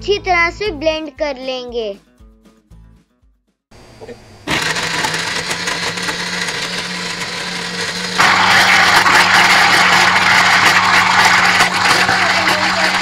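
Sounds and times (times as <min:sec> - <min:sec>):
blender motor whirring: 0:03.8 - 0:13.0.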